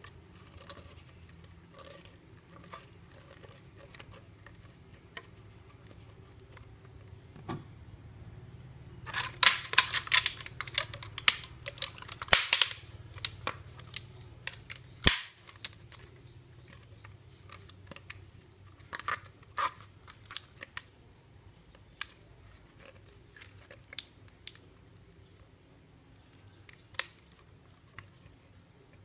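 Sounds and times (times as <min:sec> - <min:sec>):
plastic bottle crackling and clicking: 0:09.1 - 0:20.9, 0:21.6 - 0:25.4.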